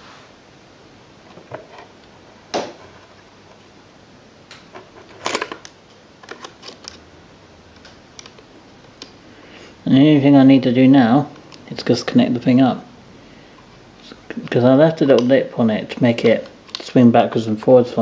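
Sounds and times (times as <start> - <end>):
small plastic parts clicking: 16.2 - 17.0.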